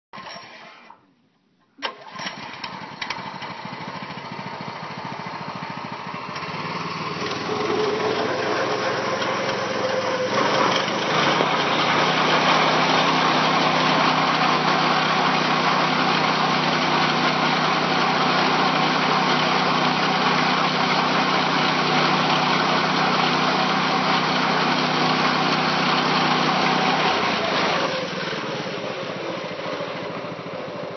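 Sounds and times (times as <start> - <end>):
small engine driving a winch: 0.2 - 1.0, 1.8 - 30.9.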